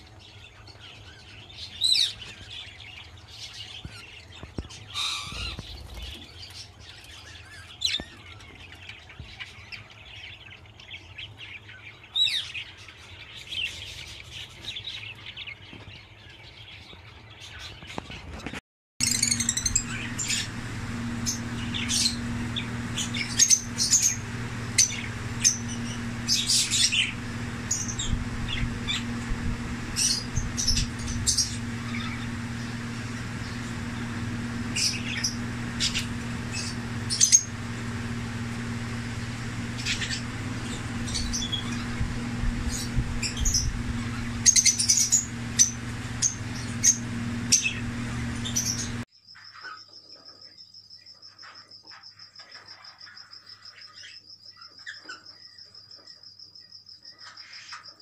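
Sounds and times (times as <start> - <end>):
lovebirds chirping: 19.0 - 49.0
steady low hum: 19.0 - 49.1.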